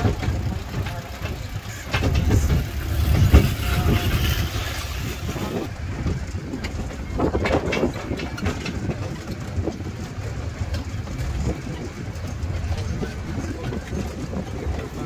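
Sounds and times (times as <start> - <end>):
clicks and knocks: 0.0 - 5.7
low engine rumble: 0.0 - 15.0.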